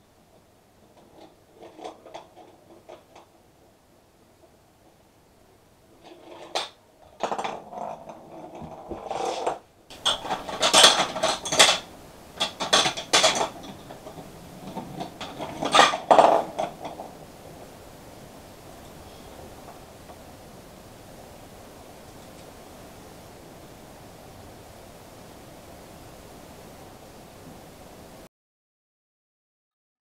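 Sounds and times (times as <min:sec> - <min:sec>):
plastic ball rattling along track: 0:06.1 - 0:17.2.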